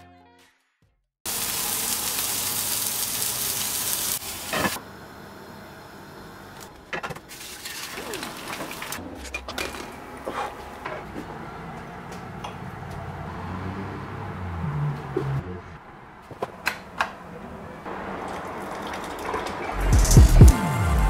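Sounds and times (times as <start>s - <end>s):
food sizzling in a frying pan: 1.3s - 4.8s
kitchen utensils clicking and knocking: 18.0s - 20.5s.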